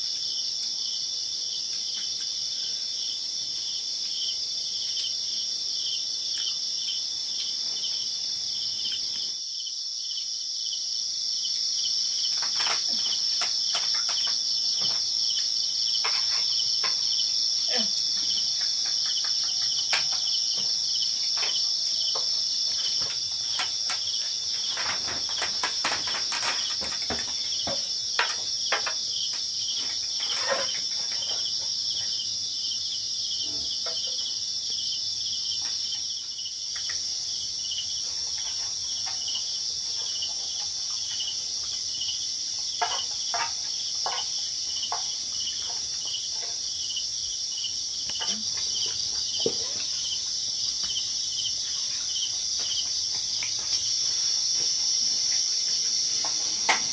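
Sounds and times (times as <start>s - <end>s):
insects trilling: 0.0s - 56.9s
small clicks and knocks: 12.3s - 17.2s, 18.2s - 31.7s.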